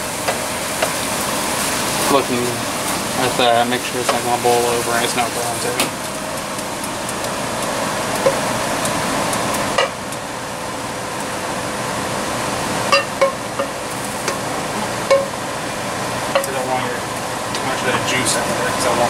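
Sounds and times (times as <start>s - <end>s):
kitchen hiss: 0.0s - 5.9s.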